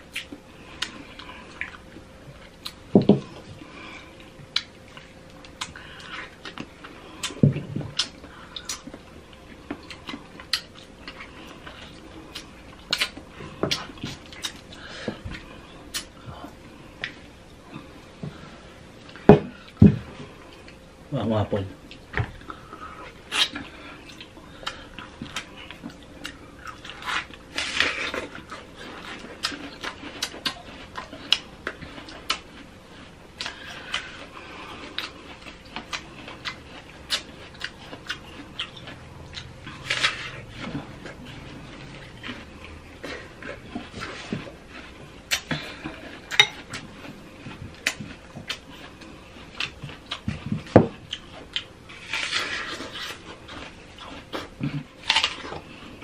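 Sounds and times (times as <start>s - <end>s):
wet chewing and lip smacks: 4.2s - 16.2s, 21.8s - 51.8s.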